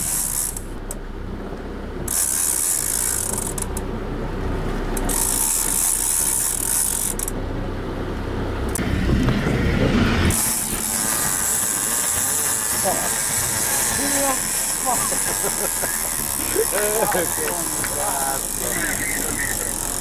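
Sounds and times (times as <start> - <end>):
fishing reel gears ticking: 0.0 - 0.8, 2.1 - 3.8, 5.0 - 7.4, 10.3 - 20.0
boat engine hum: 0.0 - 20.0.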